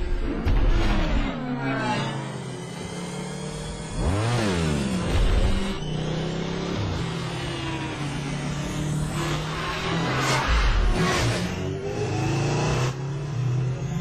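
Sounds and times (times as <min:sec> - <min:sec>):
electronic engine hum: 0:00.0 - 0:14.0.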